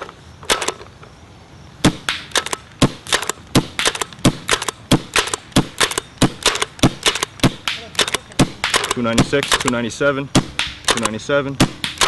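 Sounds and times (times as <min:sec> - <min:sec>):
pump clacks: 0:02.4 - 0:09.8
paintball marker pops: 0:10.4 - 0:12.0.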